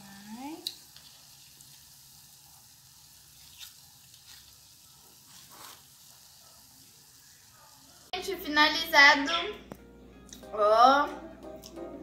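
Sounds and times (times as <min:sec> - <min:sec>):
batter deep-frying in oil: 0:00.0 - 0:08.2.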